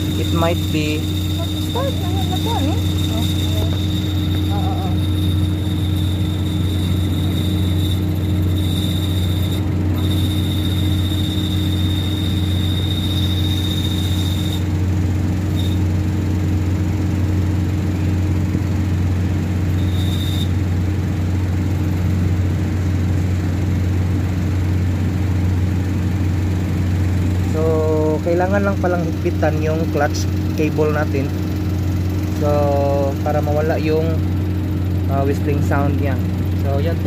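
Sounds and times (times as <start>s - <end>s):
high-pitched whistle: 0.0s - 14.7s, 15.5s - 15.9s, 19.7s - 20.6s
car engine idling: 0.0s - 37.0s.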